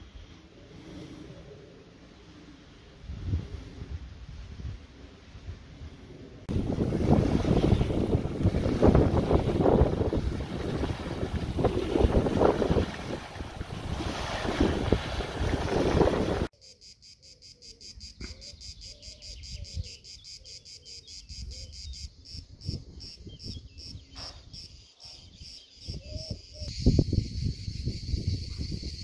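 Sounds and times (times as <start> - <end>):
wind buffeting microphone: 2.9 - 16.5, 22.4 - 29.0
small waves lapping on shore: 6.5 - 16.5
cicadas pulsing chorus: 16.5 - 29.0.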